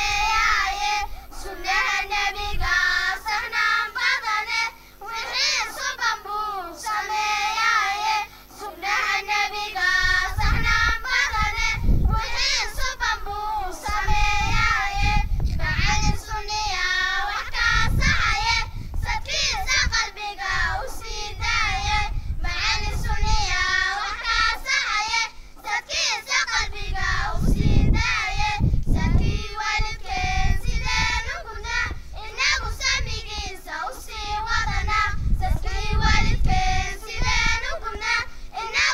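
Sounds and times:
girls singing into a microphone: 0.0s - 38.9s.

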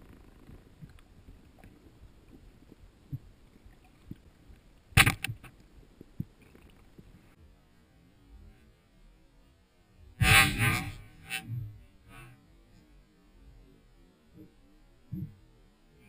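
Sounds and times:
small underwater clicks: 0.0s - 7.4s
low underwater background: 0.0s - 16.0s
speargun firing underwater: 5.0s - 5.5s.

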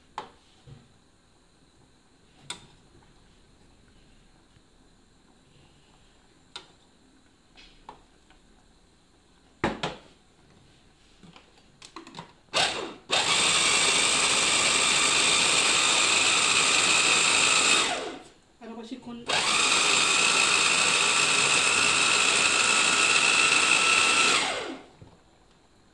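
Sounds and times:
electric chopper motor running: 12.6s - 18.2s, 19.3s - 24.9s.

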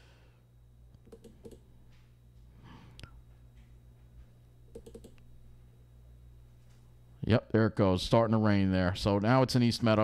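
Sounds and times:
steady low hum: 0.0s - 10.0s
computer input clicks: 1.0s - 1.6s, 4.7s - 5.2s.

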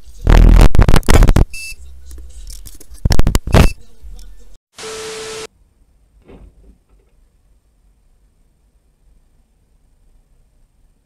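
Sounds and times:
static hiss: 4.8s - 5.5s.

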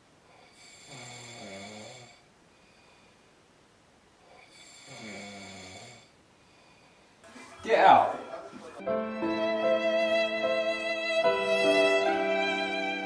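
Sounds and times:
man snoring: 0.4s - 2.3s, 4.3s - 6.1s.

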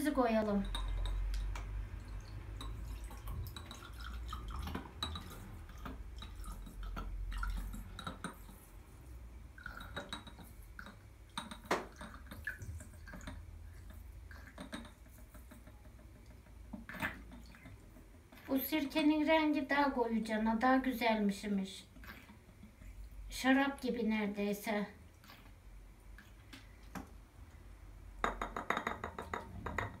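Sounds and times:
liquid trickling into glass: 0.6s - 8.2s.

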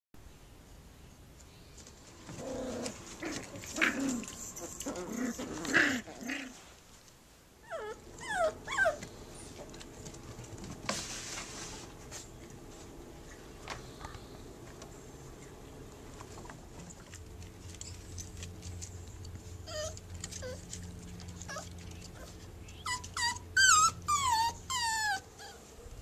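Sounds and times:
puppies growling: 2.2s - 6.7s, 7.7s - 10.7s, 16.6s - 25.6s
puppy whimpers: 7.6s - 9.8s, 19.6s - 25.6s.

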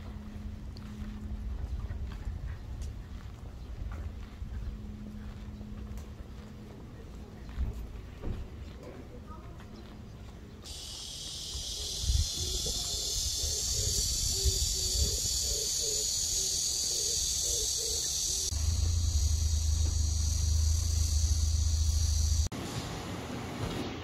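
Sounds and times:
wind buffeting microphone: 0.1s - 5.4s, 11.8s - 15.6s
high-pitched insect chorus: 10.7s - 22.5s.

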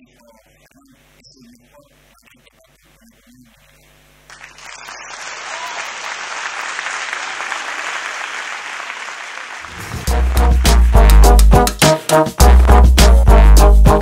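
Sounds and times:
audience applauding: 4.3s - 11.6s.

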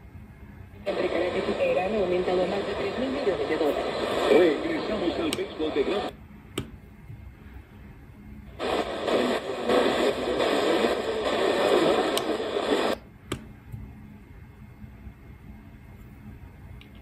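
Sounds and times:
static-laden radio broadcast: 0.8s - 6.2s, 8.5s - 13.0s.

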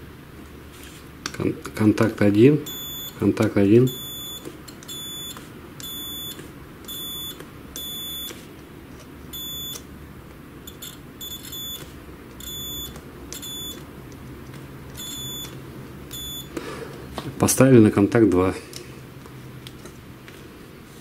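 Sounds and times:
multimeter continuity beeps: 2.6s - 8.4s, 9.3s - 9.8s, 10.7s - 13.9s, 14.9s - 16.6s.

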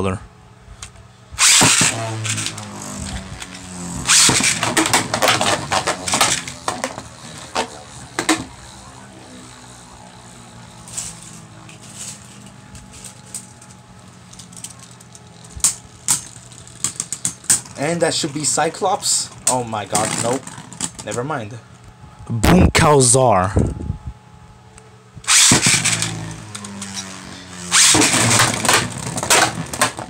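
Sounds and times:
spinning tops landing clatter: 1.4s - 8.9s, 25.3s - 30.0s
spinning tops whirring: 1.4s - 21.0s, 25.2s - 30.0s
spinning tops clacking together: 3.4s - 8.5s.

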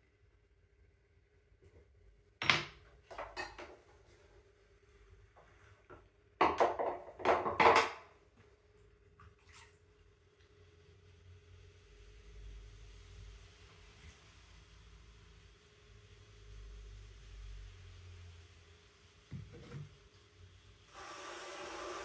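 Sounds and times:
pottery wheel humming: 20.9s - 22.0s.

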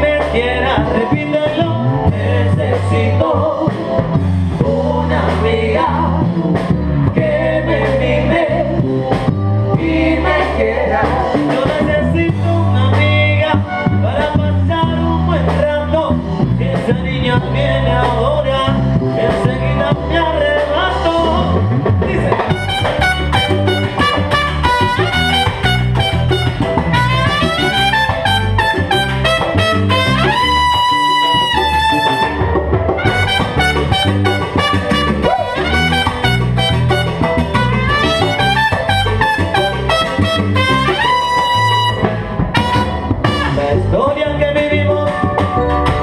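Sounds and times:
salsa band playing: 0.0s - 46.0s
high trumpet note held: 22.5s - 43.7s.

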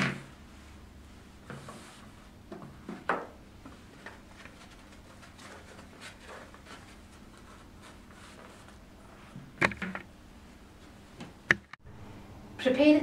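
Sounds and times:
soft rustling: 3.6s - 9.4s.

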